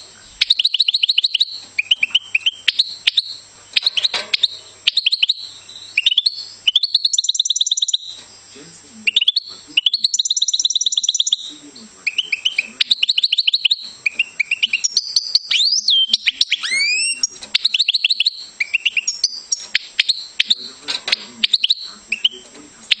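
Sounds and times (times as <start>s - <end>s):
finch twittering trills: 0.0s - 23.0s.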